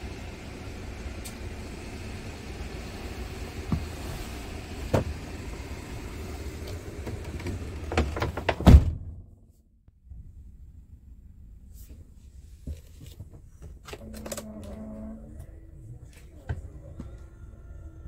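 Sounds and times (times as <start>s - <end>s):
diesel engine idling: 0.0s - 8.1s.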